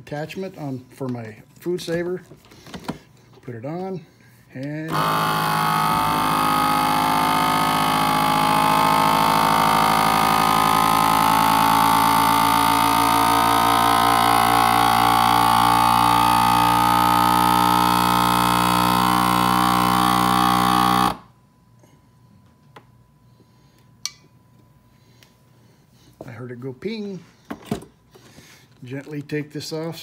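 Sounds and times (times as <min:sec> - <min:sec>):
vacuum sealer pump running: 0:04.6 - 0:21.4.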